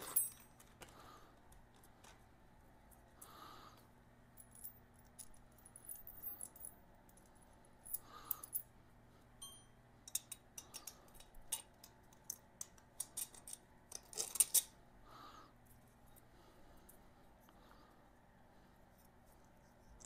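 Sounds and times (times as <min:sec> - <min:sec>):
small hardware clicking and clinking: 0:09.4 - 0:14.7.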